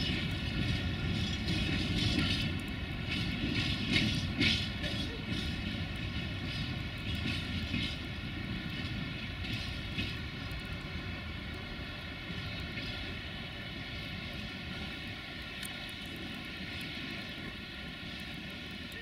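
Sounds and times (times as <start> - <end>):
freight train rumbling on rails: 0.0 - 19.0.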